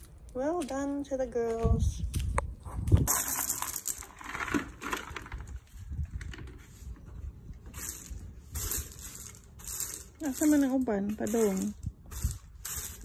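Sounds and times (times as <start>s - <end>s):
push broom sweeping pebbles: 3.0s - 13.0s.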